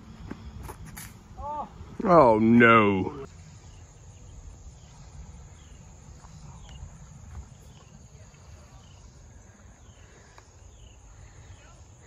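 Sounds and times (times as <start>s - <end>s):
high insect buzz: 3.2s - 12.0s.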